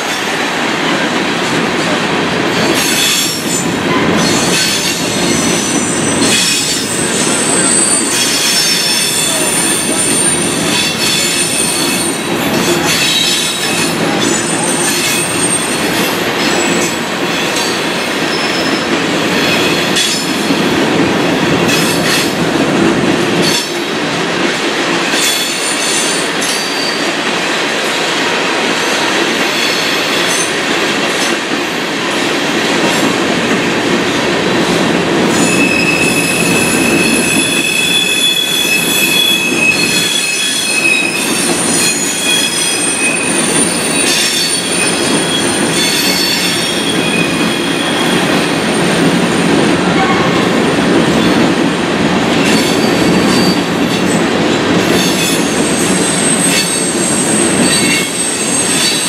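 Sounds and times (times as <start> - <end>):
train wheels rumbling on rails: 0.0 - 59.0
wheel squeal: 35.4 - 48.1.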